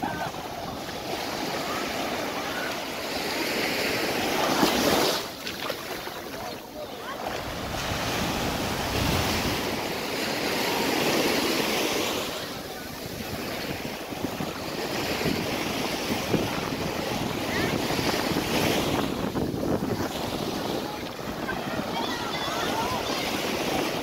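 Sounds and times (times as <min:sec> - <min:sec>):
sea surf washing up: 0:00.0 - 0:24.0
wind buffeting microphone: 0:07.2 - 0:10.1, 0:12.7 - 0:24.0.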